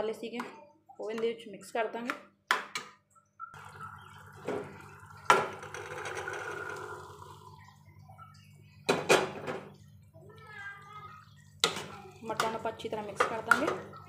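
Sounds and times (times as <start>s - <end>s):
peas and liquid pouring: 3.6s - 7.7s.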